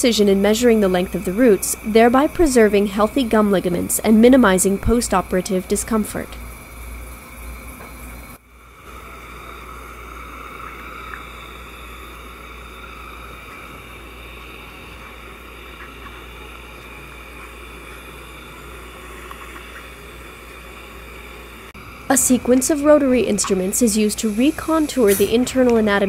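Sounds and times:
low hum: 0.0s - 26.0s
steady hiss: 0.0s - 26.0s.

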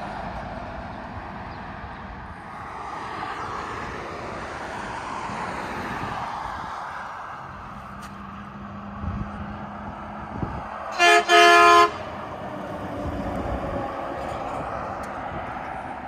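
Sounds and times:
truck engine and tyres passing: 0.0s - 16.0s
truck horn blasts: 10.9s - 12.3s.

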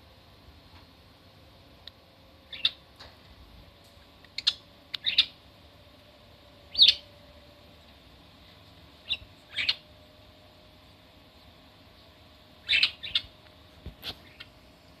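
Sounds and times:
budgerigar chirping: 2.5s - 2.8s, 4.4s - 5.4s, 6.7s - 7.0s, 9.0s - 9.8s, 12.6s - 13.3s.

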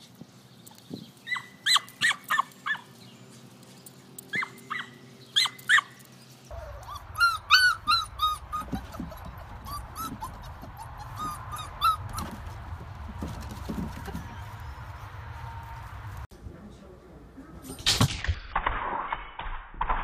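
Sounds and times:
puppies whining and yelping: 1.2s - 2.8s, 4.3s - 12.6s
small dog yapping: 1.2s - 2.8s, 4.3s - 12.4s
puppies whimpering: 6.5s - 12.6s.

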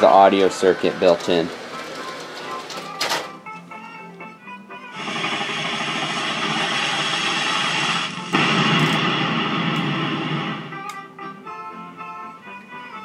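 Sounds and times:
loud rushing hissing noise: 5.0s - 10.8s.

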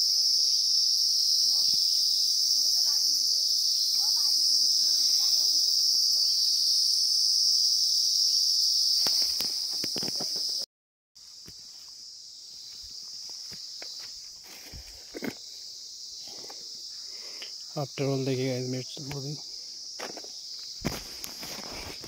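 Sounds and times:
high-pitched insect chorus: 0.0s - 22.0s
rustling in plants: 20.1s - 22.0s.

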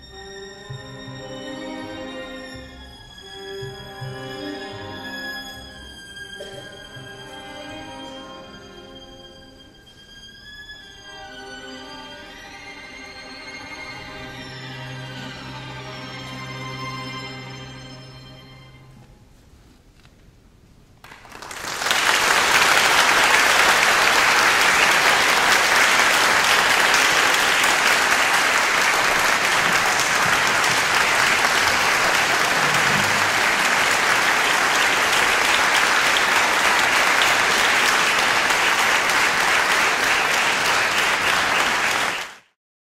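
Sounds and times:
audience applause: 21.0s - 42.6s.

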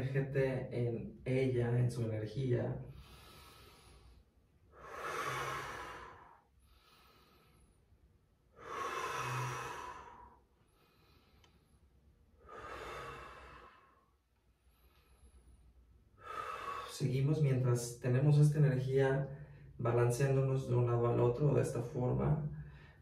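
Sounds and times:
person breathing deeply: 2.8s - 17.0s, 19.2s - 19.8s, 22.5s - 23.0s.

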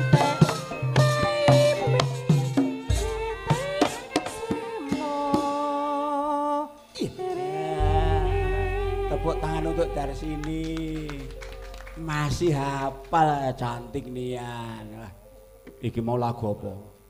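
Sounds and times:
woman singing long notes: 2.9s - 13.2s
deep gong strokes: 7.8s - 15.6s
gamelan music: 7.8s - 15.6s.

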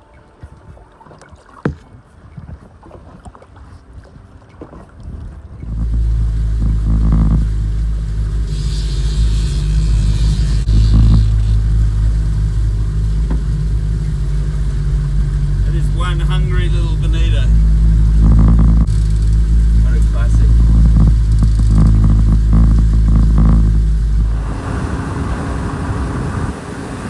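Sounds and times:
outboard motor hum: 0.0s - 27.0s
hiss of boat wash: 5.8s - 18.2s, 18.8s - 27.0s.

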